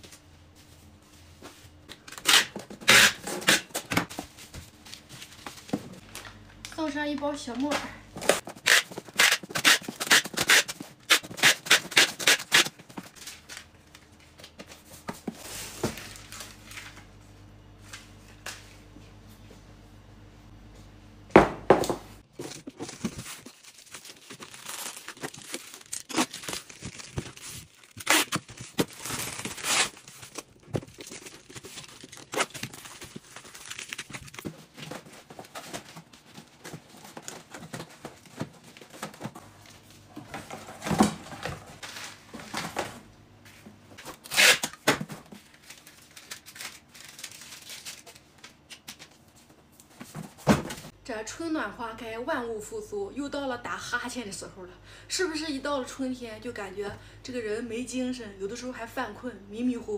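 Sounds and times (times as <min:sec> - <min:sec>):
cardboard tearing and crinkling: 0:08.2 - 0:13.6, 0:22.3 - 0:39.3, 0:44.0 - 0:48.2.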